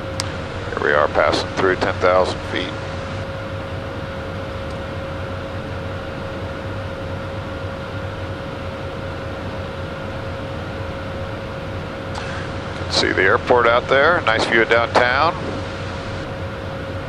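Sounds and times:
jet engines humming: 0.0s - 17.0s
steady whine: 0.0s - 17.0s
airflow rush: 13.6s - 17.0s.

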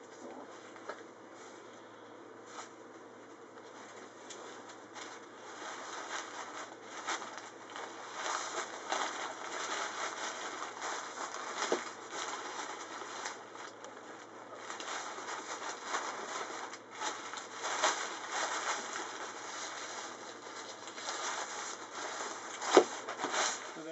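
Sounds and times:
kite sail rustling and crinkling: 3.6s - 23.9s.

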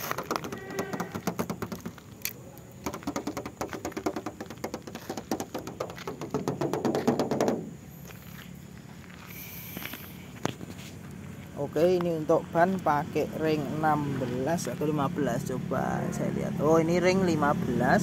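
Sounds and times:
knuckles tapping on sheet metal: 0.0s - 2.0s, 2.8s - 7.7s.

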